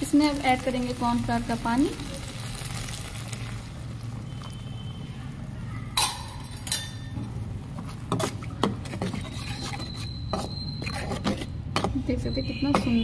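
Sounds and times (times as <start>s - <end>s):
metal spatula clinking on pan: 6.0s - 7.2s.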